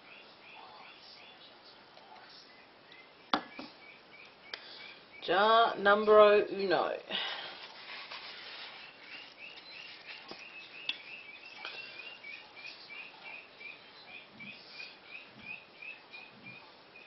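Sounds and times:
ducklings peeping: 2.4 - 5.8, 8.1 - 17.0.

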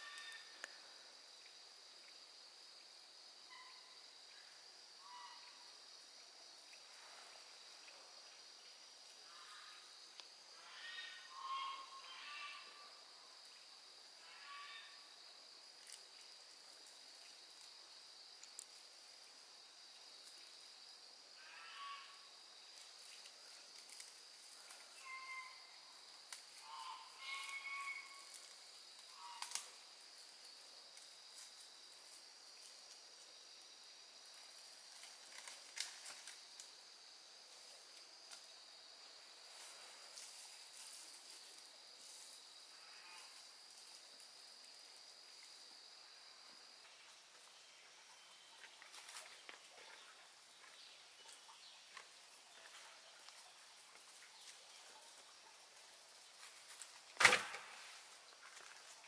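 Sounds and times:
short animal calls: 10.6 - 12.8, 25.0 - 25.6, 26.6 - 28.3
high-pitched insect drone: 26.7 - 28.5.

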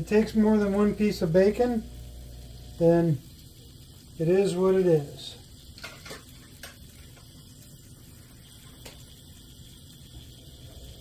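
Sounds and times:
meat sizzling in skillet: 0.0 - 11.0.

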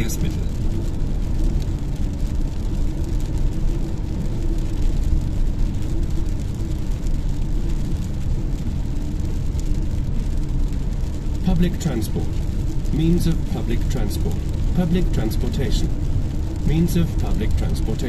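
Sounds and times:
low engine hum: 0.0 - 18.0
tyres on wet road: 0.0 - 18.0.

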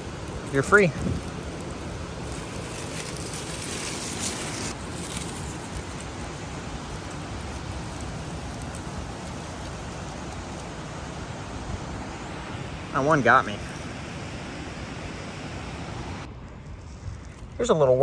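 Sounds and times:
wind on microphone: 0.0 - 13.0
rustle of dry pine straw: 0.0 - 17.9.

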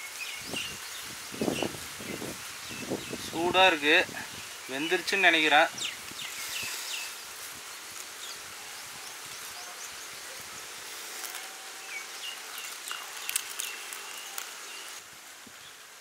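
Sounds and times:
crisp leaf crackling: 3.3 - 15.1
leaf wrapping crinkling: 3.6 - 15.1.

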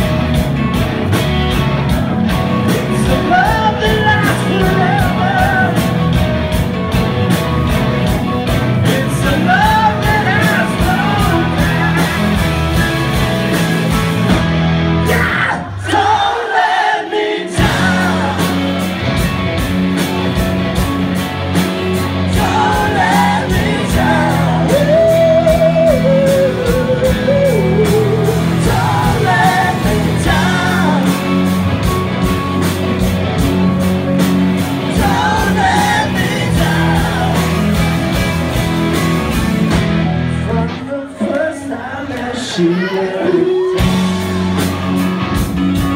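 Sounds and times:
live rock band playing: 0.0 - 45.9
person singing: 2.6 - 6.0, 8.8 - 12.3, 22.3 - 31.6, 40.4 - 44.0.

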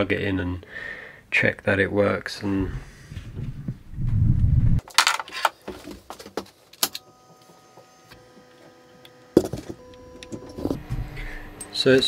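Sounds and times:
faint high electrical whine: 6.8 - 12.0.

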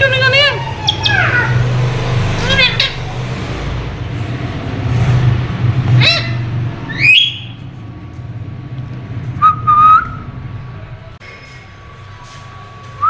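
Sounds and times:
parakeet whistling: 0.6 - 1.6, 6.0 - 7.6.

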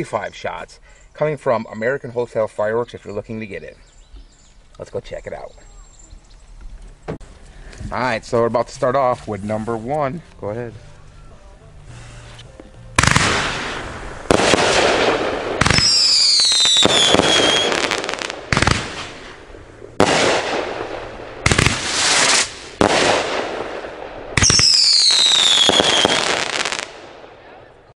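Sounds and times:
falling firework whistles: 13.0 - 19.1, 21.6 - 23.1, 24.4 - 26.8
firework launches with hiss: 13.0 - 19.4, 21.4 - 23.6.

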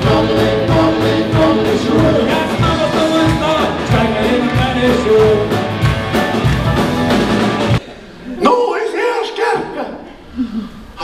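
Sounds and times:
live rock band playing: 0.0 - 7.8.

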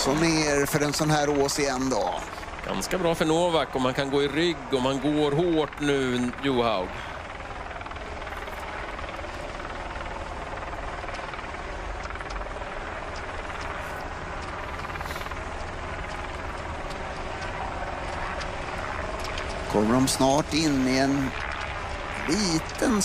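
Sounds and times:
engine drone with low rumble: 0.0 - 23.0
faint clicks: 8.3 - 22.8.

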